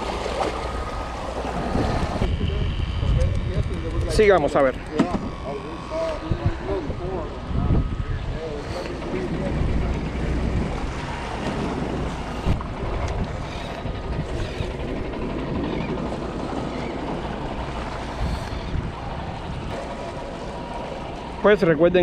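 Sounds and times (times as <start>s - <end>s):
small waves washing against rocks: 0.0s - 2.2s
wind rumbling on microphone: 0.0s - 21.4s.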